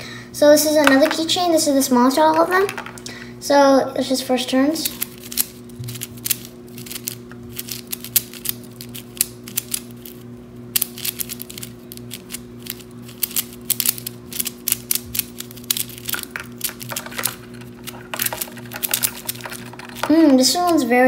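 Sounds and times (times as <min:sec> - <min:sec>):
plastic puzzle cube clicking: 0:06.2 - 0:09.9, 0:10.8 - 0:20.8.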